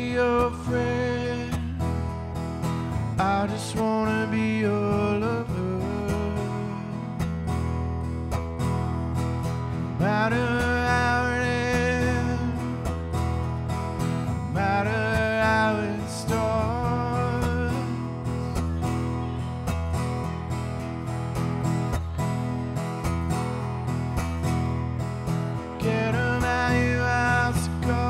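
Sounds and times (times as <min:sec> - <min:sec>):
man singing: 0:00.0 - 0:01.9, 0:03.1 - 0:07.2, 0:10.0 - 0:12.9, 0:14.4 - 0:18.5, 0:25.8 - 0:28.0
acoustic guitar strummed: 0:00.0 - 0:28.0.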